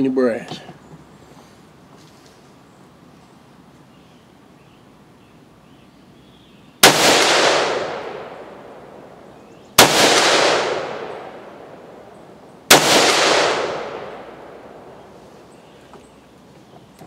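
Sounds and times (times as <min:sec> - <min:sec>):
sharp ringing gunshot cracks: 0:06.8 - 0:09.2, 0:09.8 - 0:12.1, 0:12.7 - 0:15.0
rifle shots: 0:06.8 - 0:15.2.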